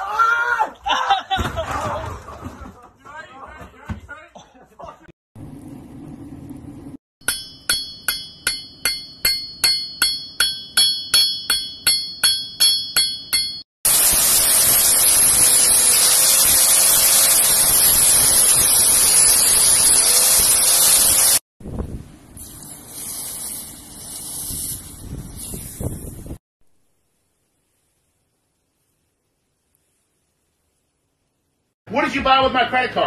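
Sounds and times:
hammer striking steel on anvil: 7.2 - 13.6
angle grinder running: 13.9 - 21.4.

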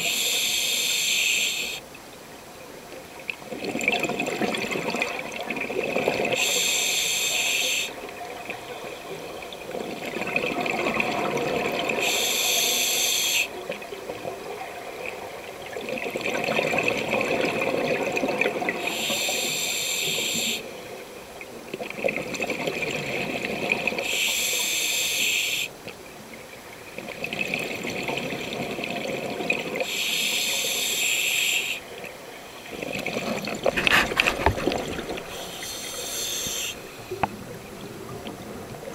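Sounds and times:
regulator hiss: 0.0 - 1.8, 6.4 - 8.0, 12.0 - 13.5, 18.8 - 20.7, 24.0 - 25.7, 29.8 - 31.8, 35.2 - 37.3
bubbles gurgling: 32.7 - 35.4.

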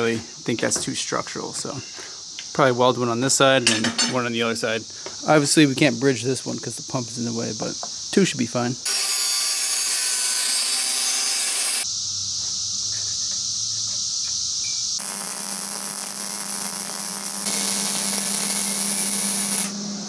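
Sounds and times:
hissing tool noise: 8.8 - 20.0
low hum: 19.1 - 20.0.

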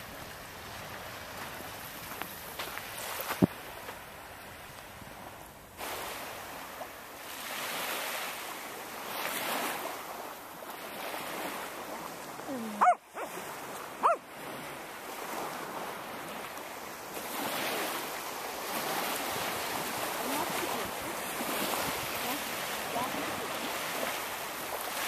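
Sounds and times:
surf washing on shore: 0.0 - 25.0
dog barking: 12.7 - 13.4, 14.0 - 14.3.

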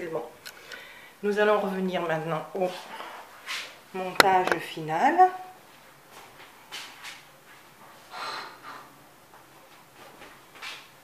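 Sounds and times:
person breathing faintly: 0.5 - 1.2.

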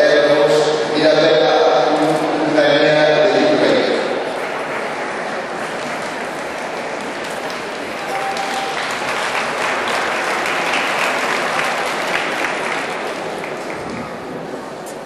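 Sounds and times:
crowd applauding: 4.2 - 14.3.

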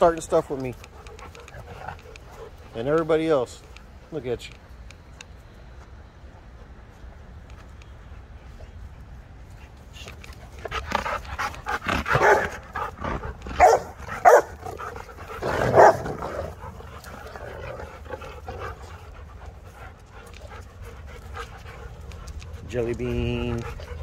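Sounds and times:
dogs panting: 0.0 - 24.0
dogs barking: 10.7 - 19.1.

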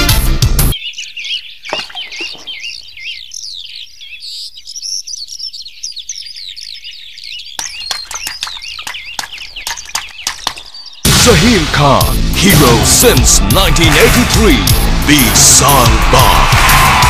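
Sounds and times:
birds chirping: 0.0 - 17.0
sharp clicks: 7.6 - 10.7.

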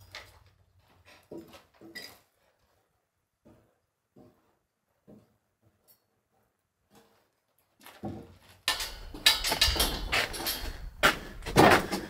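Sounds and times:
wooden knocks and scraping: 6.9 - 12.0.

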